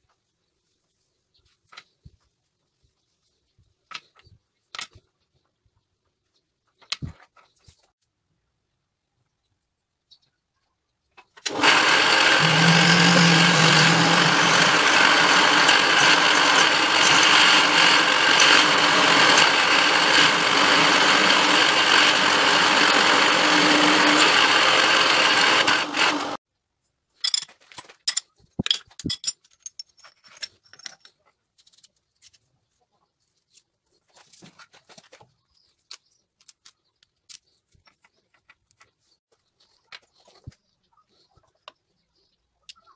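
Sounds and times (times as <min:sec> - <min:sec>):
drill boring through metal: 0:11.5 - 0:26.4.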